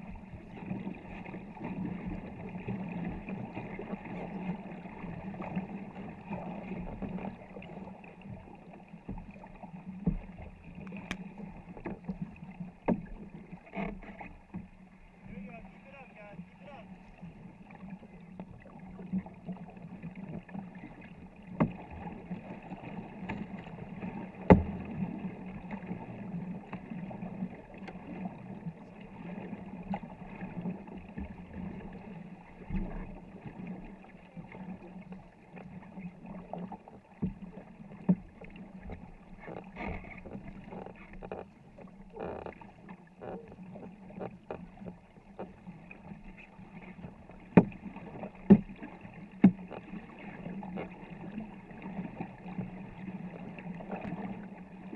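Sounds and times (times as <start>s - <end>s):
paddle strokes in water: 0.0s - 54.9s
sharp knocks on canoe: 12.8s - 14.7s, 21.5s - 21.9s, 23.2s - 23.7s, 24.3s - 25.0s, 38.8s - 43.5s, 47.0s - 49.9s.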